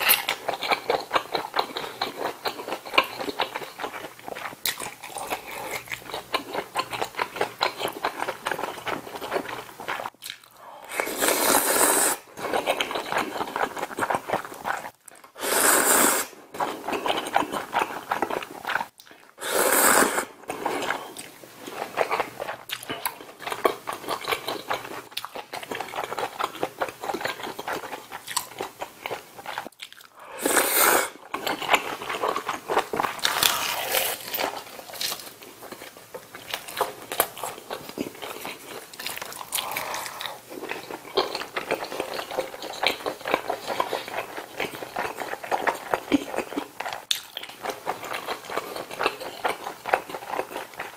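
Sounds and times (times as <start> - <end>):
wet chewing and smacking: 0.0 - 10.6, 12.3 - 15.4, 16.6 - 19.4, 20.5 - 30.2, 31.2 - 50.9
slurping noodles: 10.9 - 22.4, 30.2 - 32.5.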